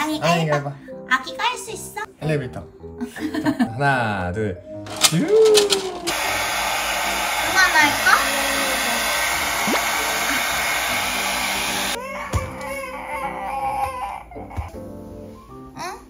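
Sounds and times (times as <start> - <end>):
hair dryer blowing: 4.9 - 12.0.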